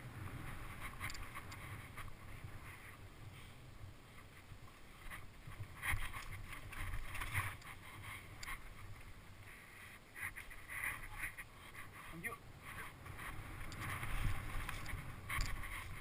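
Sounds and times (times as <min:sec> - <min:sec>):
bike rattling: 0:00.0 - 0:03.4, 0:04.0 - 0:09.3, 0:10.1 - 0:16.0
bike tyres on dirt and stones: 0:00.0 - 0:16.0
wind on microphone: 0:10.4 - 0:16.0.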